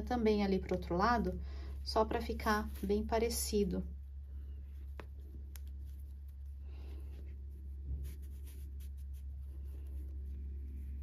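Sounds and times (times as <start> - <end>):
low hum: 0.6 - 11.0.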